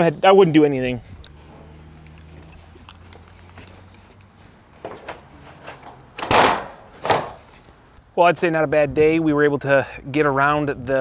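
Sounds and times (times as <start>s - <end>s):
taps and clinks of metal panels: 4.8s - 7.4s
scuff or rustle: 6.9s - 7.9s.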